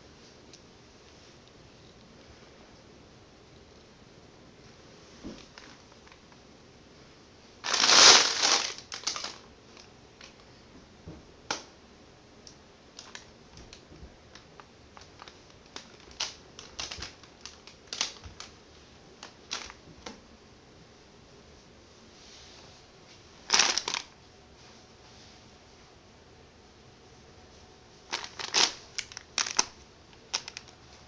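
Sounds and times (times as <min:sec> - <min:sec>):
scraping rustle on carpet: 0:22.0 - 0:23.2.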